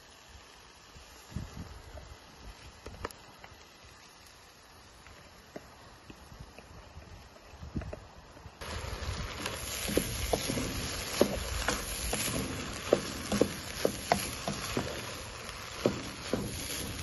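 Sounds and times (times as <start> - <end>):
steady hiss: 0.0 - 17.0
wooden spoon scraping pot: 9.3 - 17.0.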